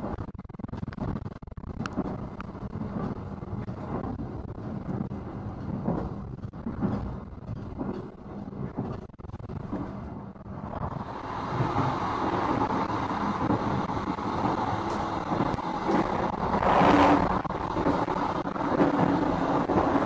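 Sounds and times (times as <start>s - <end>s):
train rumble and rattle: 0.0s - 20.0s.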